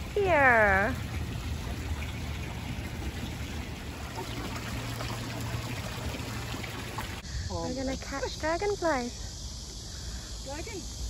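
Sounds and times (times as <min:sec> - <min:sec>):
fountain water splashing into pool: 0:00.0 - 0:07.2.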